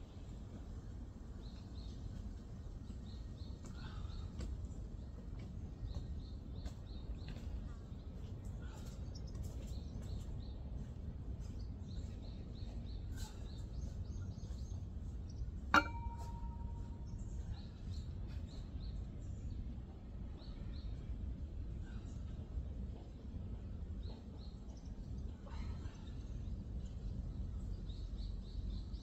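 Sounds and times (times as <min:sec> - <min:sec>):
barbell clinking against metal rack: 0:15.7 - 0:17.0.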